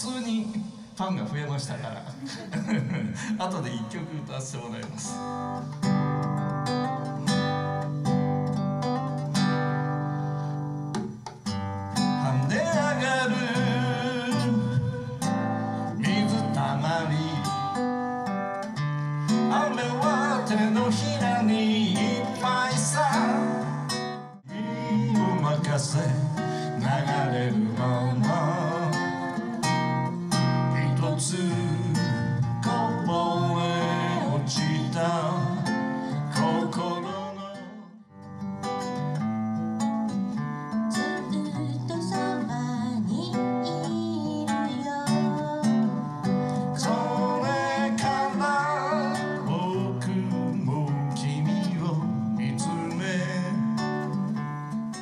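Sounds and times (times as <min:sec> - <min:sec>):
acoustic guitar: 0:00.0 - 0:55.0
man singing with vibrato: 0:12.1 - 0:18.2, 0:19.2 - 0:38.1, 0:46.5 - 0:54.1.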